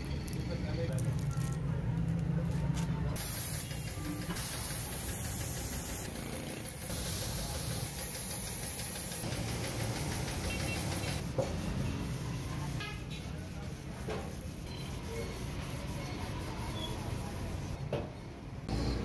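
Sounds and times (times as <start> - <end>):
machine running with hiss: 3.2 - 12.8.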